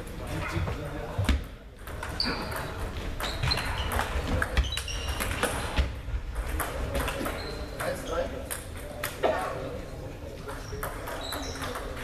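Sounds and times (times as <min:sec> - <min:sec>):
murmur of voices: 0:00.0 - 0:12.0
table tennis balls clicking: 0:01.7 - 0:09.2, 0:10.5 - 0:12.0.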